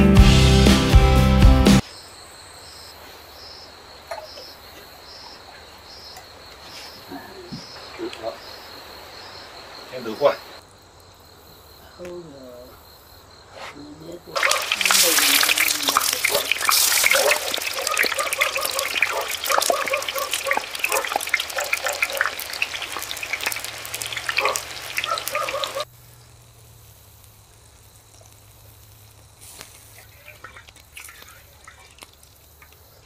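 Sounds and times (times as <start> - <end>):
oil spattering crackles: 14.4 - 33.0
tofu sizzling in oil: 14.4 - 33.0.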